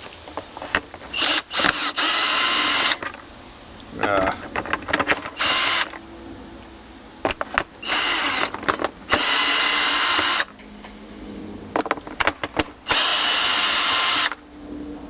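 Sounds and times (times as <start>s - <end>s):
power drill motor running: 1.1s - 3.0s, 5.4s - 5.9s, 7.8s - 8.5s, 9.1s - 10.5s, 12.8s - 14.4s.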